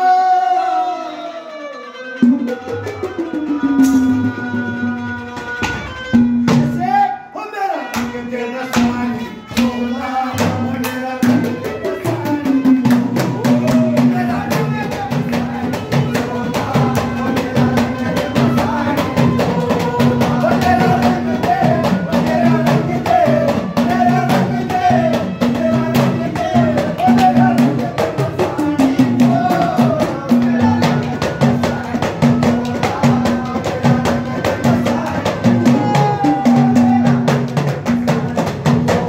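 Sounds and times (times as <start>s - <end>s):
banjo melody: 1.5s - 6.8s
clay pot drum: 10.4s - 39.0s
hourglass drum beats: 12.3s - 39.0s.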